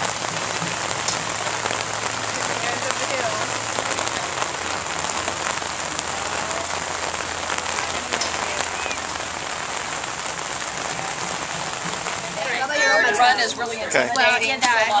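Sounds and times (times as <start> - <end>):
sharp raindrop ticks: 0.0 - 12.6
heavy rain on pavement and grass: 0.0 - 15.0.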